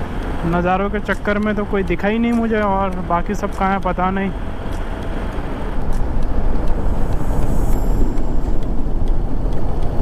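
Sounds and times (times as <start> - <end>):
motorcycle engine and tyre rumble: 0.0 - 10.0
wind rushing over microphone: 4.3 - 10.0.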